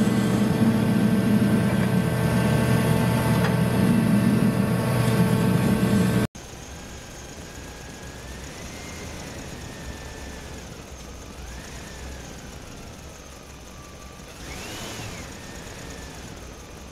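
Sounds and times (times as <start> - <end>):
toy electric motor whining: 6.6 - 16.8.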